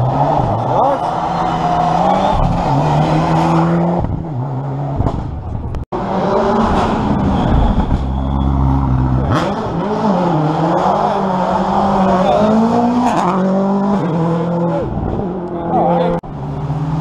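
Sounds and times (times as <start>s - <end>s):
rally car engine revving: 0.0s - 17.0s.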